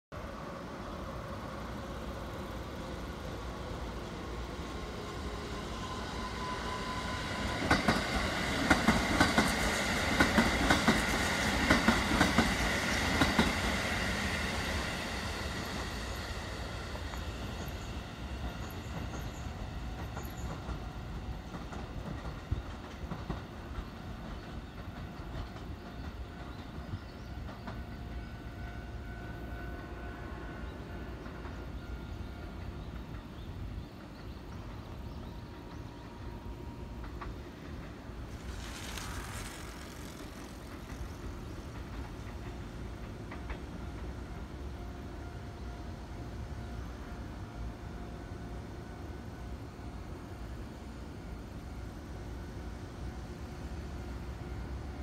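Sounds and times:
train wheels clacking over joints: 0:07.4 - 0:13.8, 0:18.4 - 0:28.2, 0:37.0 - 0:44.1.

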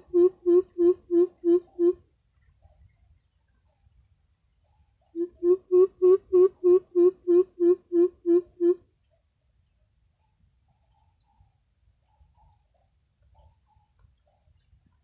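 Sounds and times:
bird deep hooting calls: 0:00.0 - 0:02.0, 0:05.2 - 0:08.8
faint high insect drone: 0:00.0 - 0:15.0.

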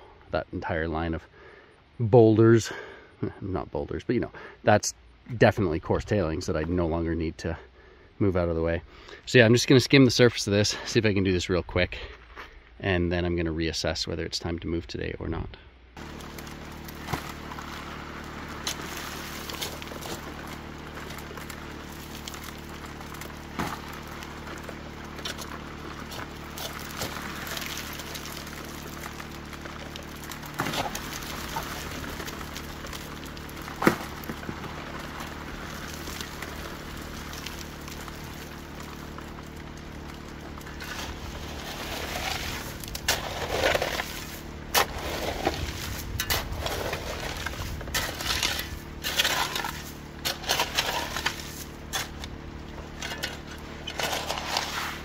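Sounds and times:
shovel scraping sand and gravel: 0:16.0 - 0:55.0
water pump humming: 0:16.0 - 0:55.0.

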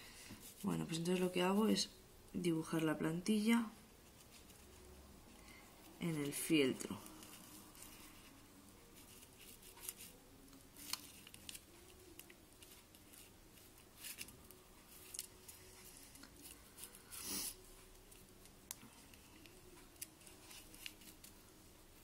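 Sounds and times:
paper rustle: 0:06.1 - 0:17.2, 0:18.8 - 0:21.4.

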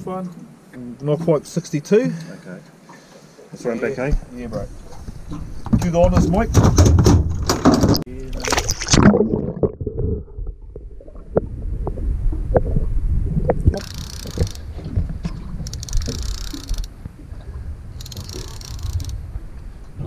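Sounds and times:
muffled underwater rumble: 0:08.8 - 0:13.8
small clicks and knocks: 0:15.6 - 0:16.9.

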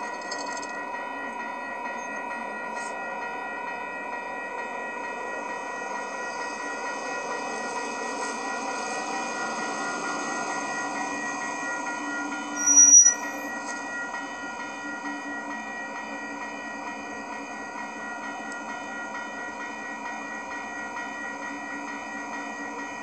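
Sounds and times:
railroad crossing bell ringing: 0:00.0 - 0:23.0
loud high-pitched squeal: 0:12.6 - 0:13.5.

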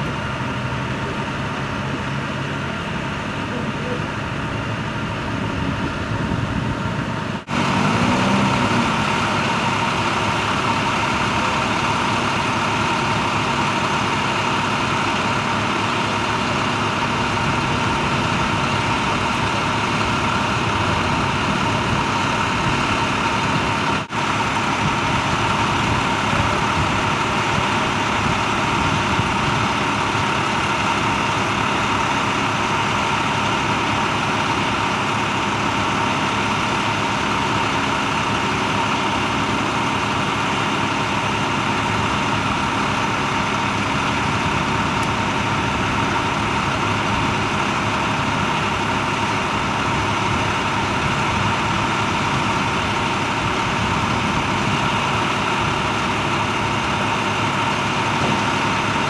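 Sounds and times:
heavy vehicle engine idling: 0:00.0 - 0:59.0.

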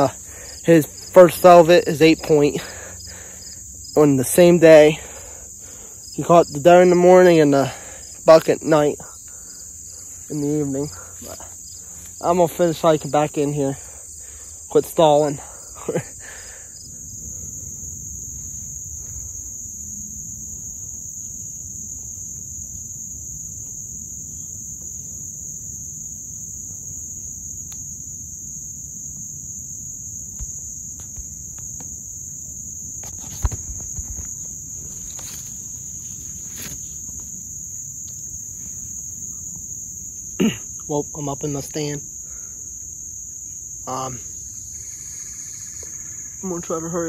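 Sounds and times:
insects chirping chorus: 0:00.0 - 0:47.0
footsteps through undergrowth: 0:33.1 - 0:37.3
twigs snapping: 0:36.4 - 0:37.3.

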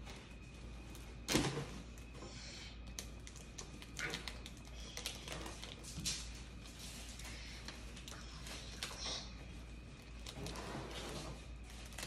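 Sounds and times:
cardboard rustling and scraping: 0:09.6 - 0:12.0.

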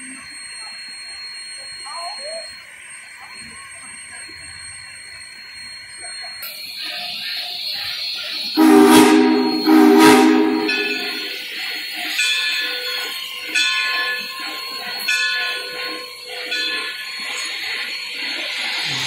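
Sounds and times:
locomotive bell ringing: 0:00.0 - 0:18.8
steam whistle blasts: 0:08.6 - 0:11.4.

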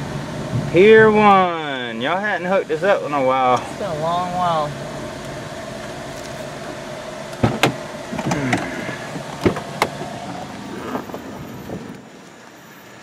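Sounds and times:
car engine idling: 0:00.0 - 0:13.0
car door clicks and knocks: 0:07.4 - 0:12.0
door creak: 0:07.6 - 0:12.0.

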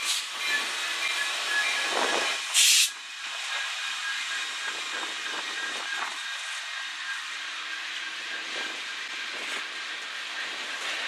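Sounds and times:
train wheels rushing on rail: 0:00.0 - 0:11.0
short loud hiss: 0:02.5 - 0:03.0.

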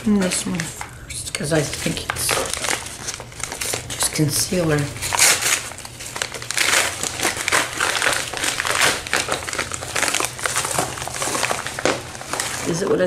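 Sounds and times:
packaging crinkling and rustling: 0:00.0 - 0:13.0.

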